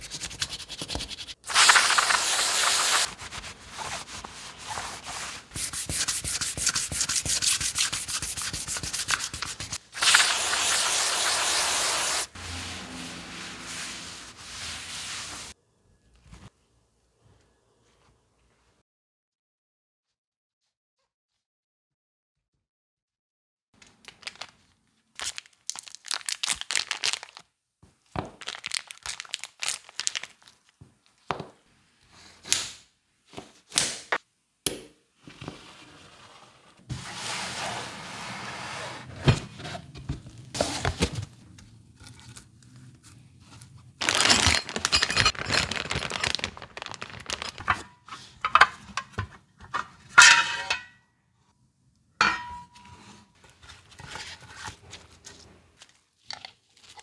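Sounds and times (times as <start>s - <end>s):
scraping or rubbing: 0.0s - 15.6s, 35.4s - 41.2s.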